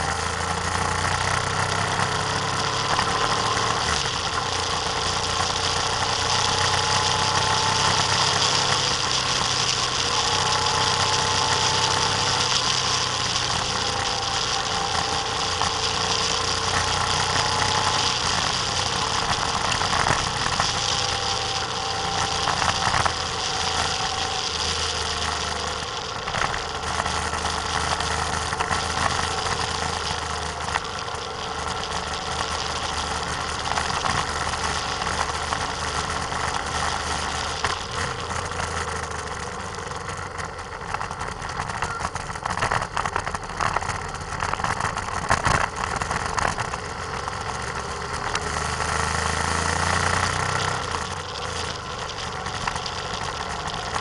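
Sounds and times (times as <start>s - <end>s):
vehicle engine running: 0.0s - 54.0s
wind and road noise: 0.0s - 54.0s.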